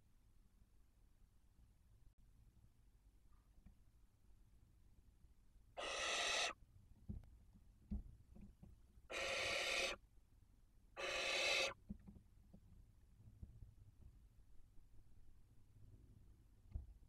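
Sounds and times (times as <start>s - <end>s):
owl hiss-screeches: 5.8s - 6.6s, 9.1s - 10.0s, 11.0s - 11.8s.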